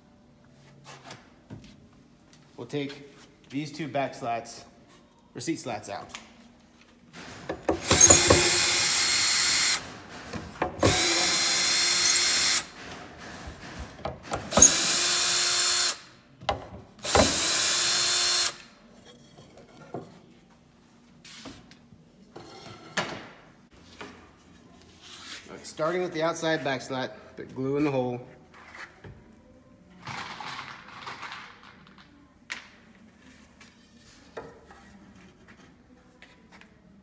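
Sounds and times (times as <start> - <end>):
cordless drill whining: 7.8 - 9.8, 10.8 - 12.6.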